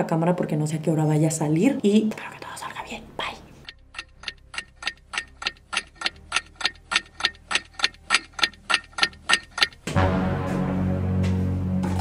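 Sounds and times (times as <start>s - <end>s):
background music: 0.0s - 12.0s
clock ticking fast: 3.6s - 9.9s.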